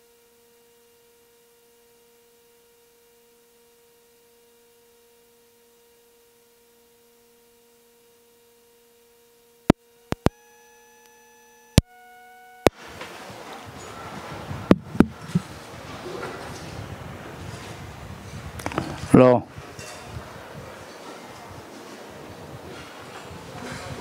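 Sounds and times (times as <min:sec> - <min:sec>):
faint electrical hum: 0:00.0 - 0:24.0
sharp clicks: 0:10.1 - 0:10.4.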